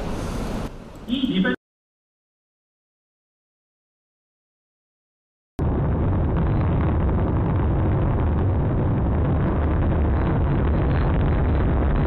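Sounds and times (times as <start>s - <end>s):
rocket motor deep rumbling: 5.6s - 12.0s.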